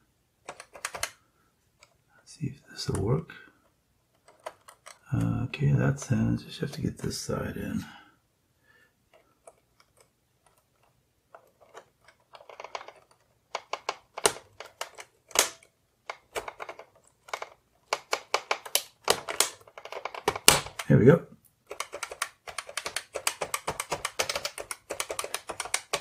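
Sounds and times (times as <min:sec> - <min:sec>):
plastic keycap clicks: 0:00.5 - 0:01.1, 0:13.6 - 0:20.9, 0:21.7 - 0:26.0.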